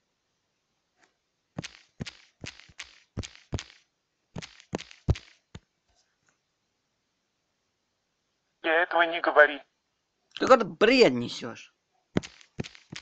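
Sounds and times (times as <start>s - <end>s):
fingertip taps on touchscreen: 4.4s - 5.6s, 12.2s - 13.0s.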